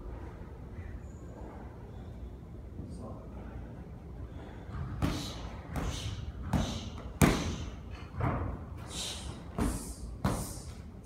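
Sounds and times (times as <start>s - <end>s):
punches and kicks thudding on pads: 4.7s - 8.5s.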